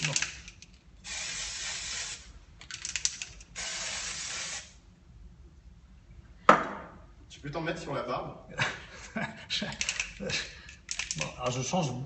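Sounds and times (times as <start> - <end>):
aerosol spray hissing: 1.0 - 2.3, 3.6 - 4.8.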